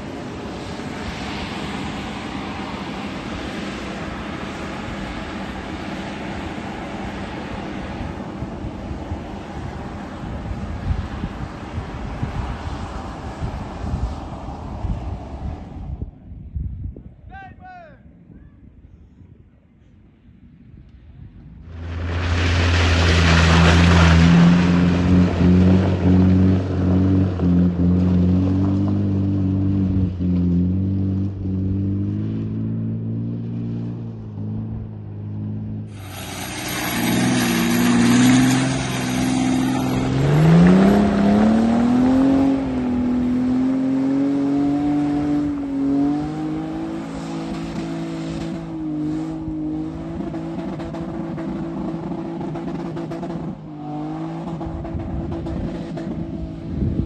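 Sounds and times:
rush of noise: 21.5s - 26.7s, 35.9s - 43.9s
engine laboring uphill: 21.6s - 57.0s
engine revving high: 35.9s - 56.8s.

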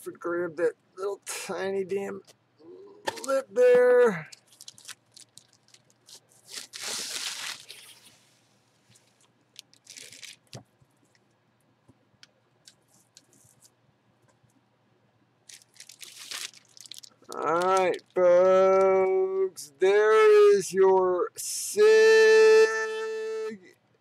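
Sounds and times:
packaging rustling and scraping: 4.4s - 10.6s, 15.5s - 18.0s.

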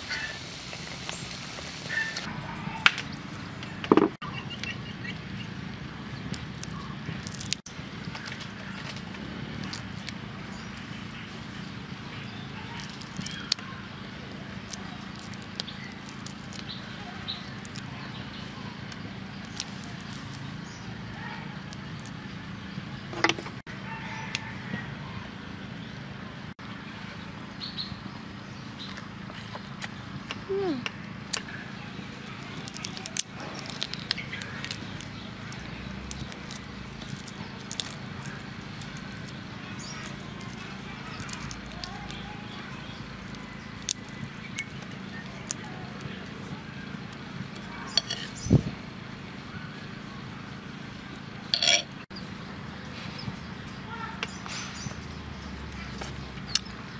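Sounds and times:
shrimp shells cracking: 32.6s - 40.6s, 41.2s - 42.2s.

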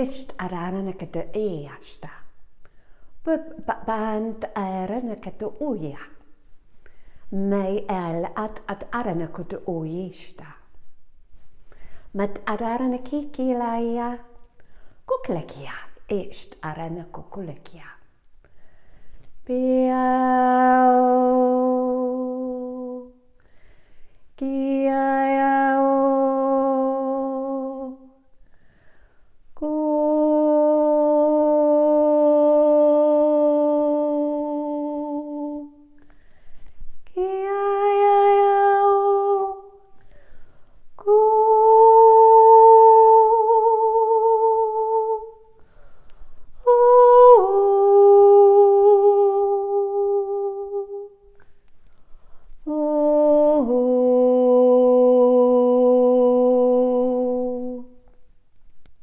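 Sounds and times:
breaths: 2.6s - 3.2s, 6.7s - 7.3s, 11.6s - 12.2s, 14.5s - 15.1s, 18.4s - 19.4s, 23.3s - 24.3s, 28.3s - 29.5s, 35.9s - 37.0s, 39.9s - 40.9s, 45.6s - 46.6s, 51.3s - 52.6s.

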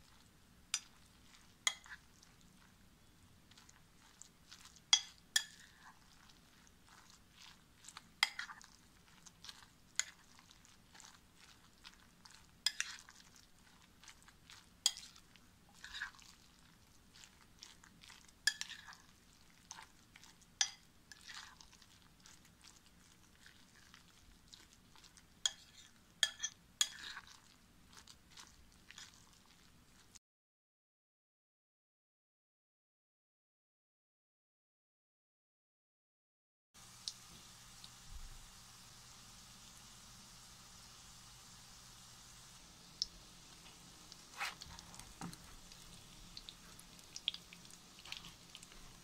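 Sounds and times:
spoon stirring wet batter: 0.0s - 30.2s, 42.2s - 49.0s
spoon clinking against glass bowl: 5.0s - 5.7s, 25.5s - 27.0s.

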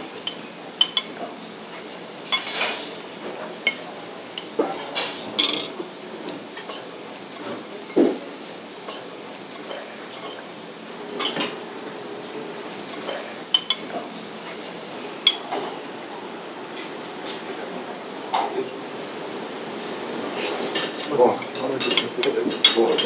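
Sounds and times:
steady background hum: 0.0s - 23.0s
cutlery clinking on plates: 0.2s - 8.2s, 8.9s - 10.5s, 11.1s - 11.6s, 12.9s - 15.7s, 20.6s - 23.0s.

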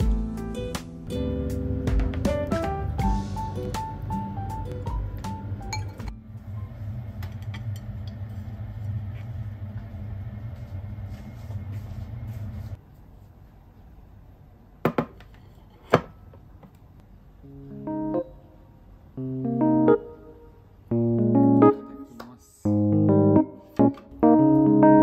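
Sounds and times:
low machine hum: 3.1s - 12.8s
ceramic tableware clinking: 5.7s - 6.1s.

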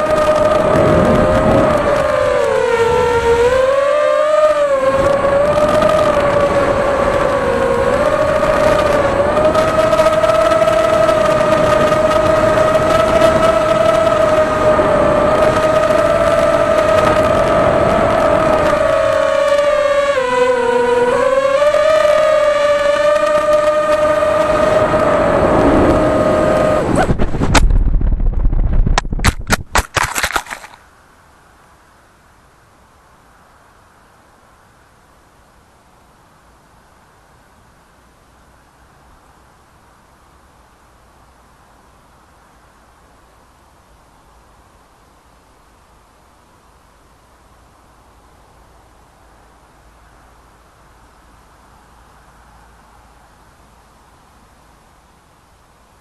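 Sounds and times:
drone motors whining: 0.0s - 27.6s
wind on microphone: 0.0s - 30.8s.

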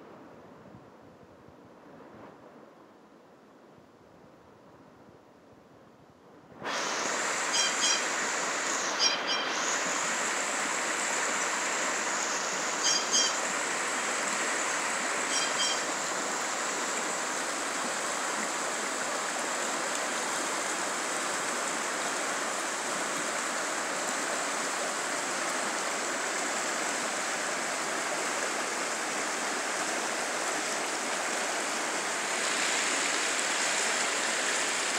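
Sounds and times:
river rushing over rocks: 6.6s - 34.9s
short high chirps: 12.8s - 13.4s, 15.3s - 15.9s.

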